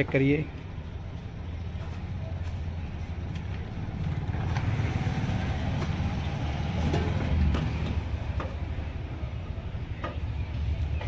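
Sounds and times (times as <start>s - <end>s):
vehicle engine passing: 1.5s - 9.4s.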